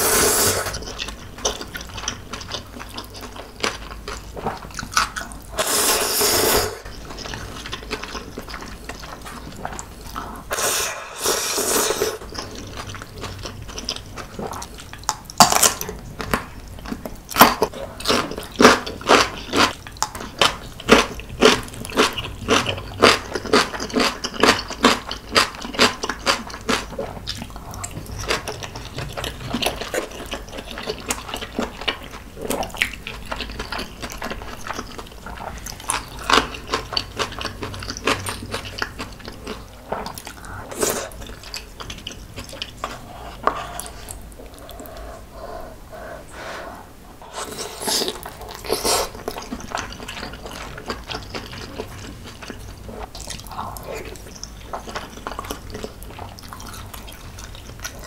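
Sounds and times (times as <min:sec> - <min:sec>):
crunchy chewing: 0:12.2 - 0:45.8, 0:47.2 - 0:58.0.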